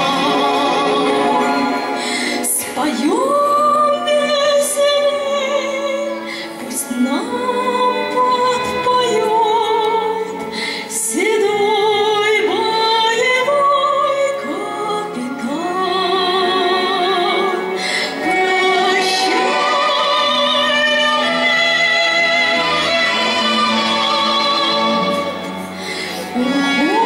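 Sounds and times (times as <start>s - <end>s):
woman singing into microphone: 2.4s - 25.4s, 26.3s - 27.0s.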